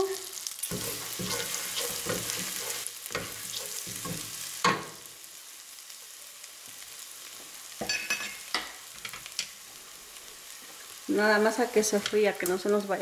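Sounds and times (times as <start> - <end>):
garlic sizzling in butter: 0.0 - 13.0
spatula scraping saucepan: 0.7 - 4.3.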